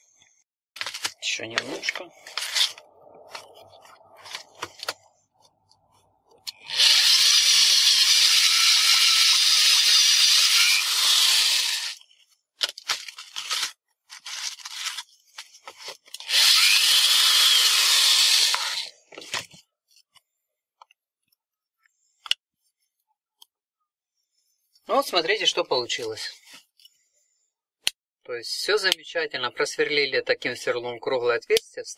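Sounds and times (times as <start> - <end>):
scraping and handling noises: 0.8 - 6.7, 12.0 - 16.3, 18.5 - 23.0
electric drill cutting: 6.6 - 12.0, 16.2 - 18.9.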